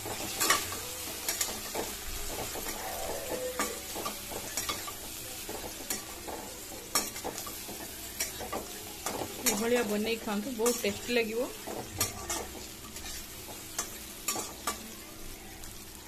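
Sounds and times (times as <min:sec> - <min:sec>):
metal spatula scraping a pan: 0:00.0 - 0:05.0, 0:08.2 - 0:14.9
food sizzling in a pan: 0:00.0 - 0:16.0.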